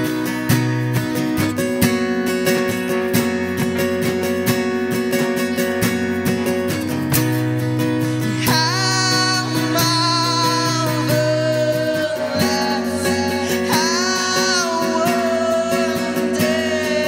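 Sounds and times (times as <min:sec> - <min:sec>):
person singing long notes: 0:08.4 - 0:17.0.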